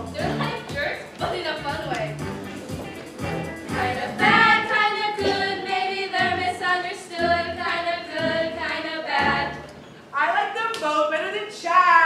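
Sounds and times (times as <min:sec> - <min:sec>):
musical accompaniment: 0:00.0 - 0:10.0
girls singing together: 0:03.7 - 0:09.8.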